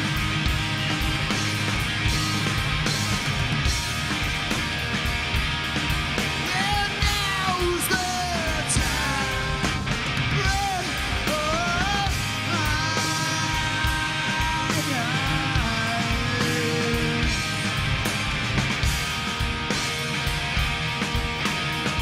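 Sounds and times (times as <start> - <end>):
rock band playing: 0.0 - 22.0
singer shouting vocals: 6.5 - 17.3.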